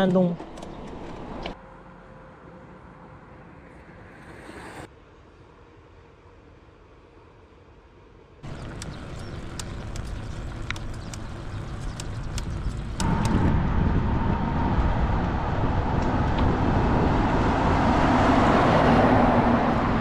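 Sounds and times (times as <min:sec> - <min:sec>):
wind and tyre noise: 0:00.0 - 0:20.0
motor vehicle passing: 0:08.4 - 0:20.0.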